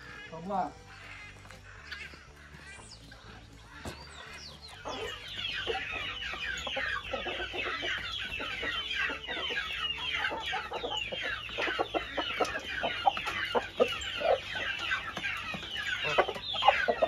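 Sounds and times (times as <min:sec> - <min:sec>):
chickens and chicks peeping: 0:00.0 - 0:17.0.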